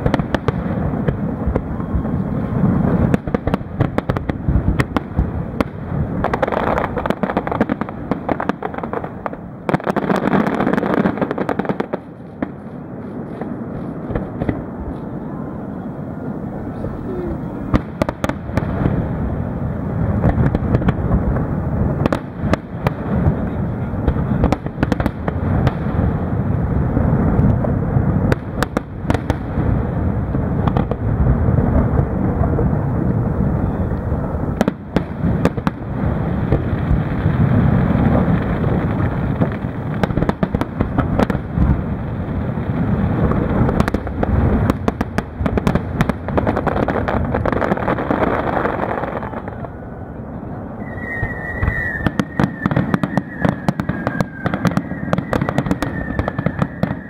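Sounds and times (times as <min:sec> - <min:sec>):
fireworks booming and cracking: 0:00.0 - 0:57.0
high whistle: 0:50.8 - 0:57.0.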